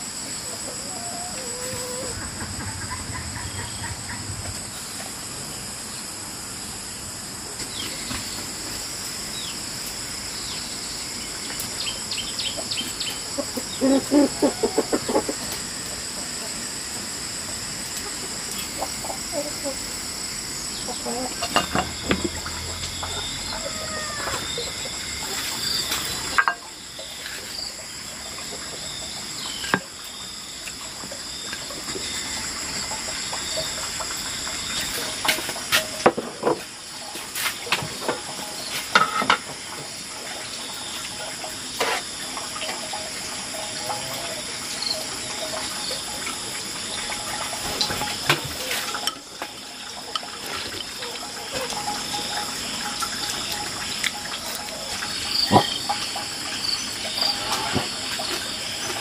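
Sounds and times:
running water: 0.0 - 59.0.

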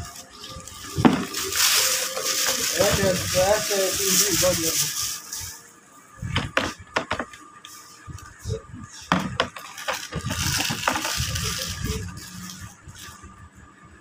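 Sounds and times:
rustling: 0.0 - 5.7
plastic items knocking together: 9.1 - 11.8.

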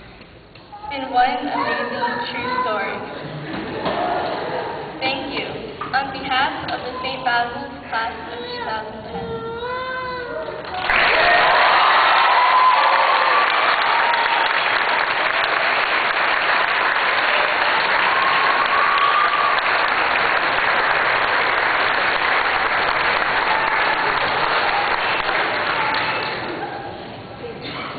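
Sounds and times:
audience applauding: 10.6 - 26.8.

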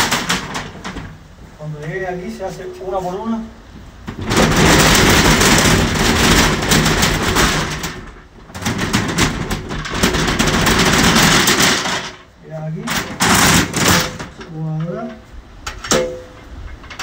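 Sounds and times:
metal shutters rattling and scraping: 0.0 - 2.0, 4.0 - 17.0.

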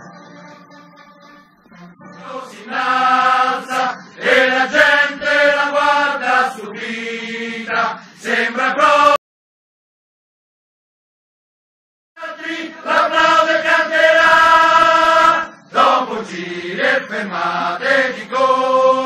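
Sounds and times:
music: 0.0 - 9.2, 12.2 - 19.0
crowd chanting in unison: 2.2 - 9.2, 12.2 - 19.0.

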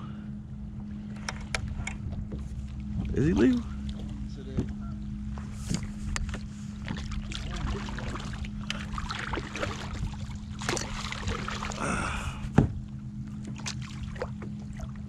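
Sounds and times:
steady low hum: 0.0 - 15.0
water splashing against kayak hull: 5.6 - 11.8, 12.4 - 15.0.

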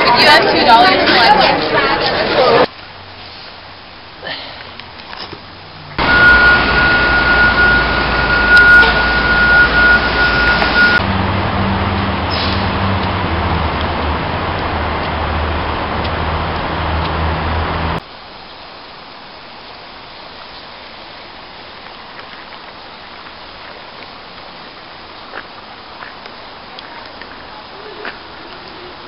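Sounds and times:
outdoor hiss: 2.7 - 11.0, 18.0 - 29.0
city traffic rushing: 4.8 - 18.0
low engine hum: 5.5 - 18.0.

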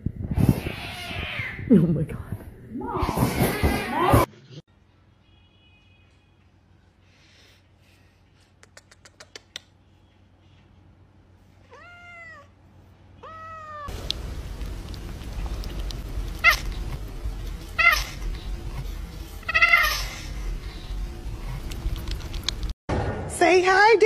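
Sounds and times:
kissing smacks: 8.5 - 9.8
cat meowing loudly: 13.2 - 13.9, 19.5 - 20.1
kitten mewing: 15.7 - 17.0, 17.6 - 18.7, 19.4 - 20.3.

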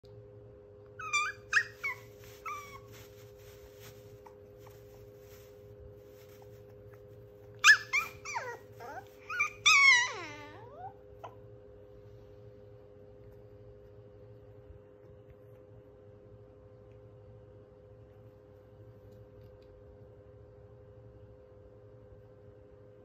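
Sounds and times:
puppy whining and whimpering: 0.9 - 5.5, 6.3 - 11.5.

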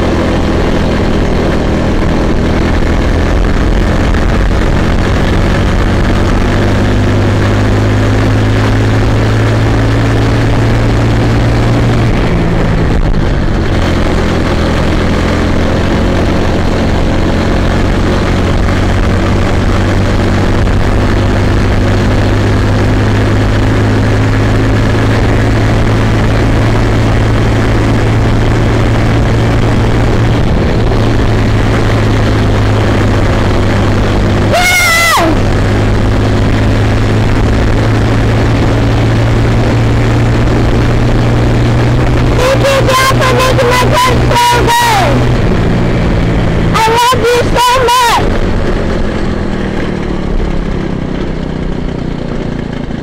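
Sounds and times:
small kart engine running: 0.0 - 53.0
high-pitched squeal: 34.4 - 35.6.

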